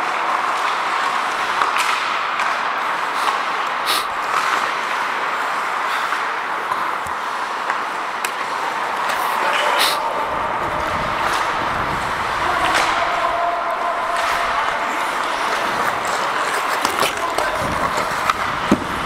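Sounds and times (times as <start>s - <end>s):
hockey sticks and puck clacking: 0.0s - 19.0s
skates hissing on ice: 3.0s - 4.4s.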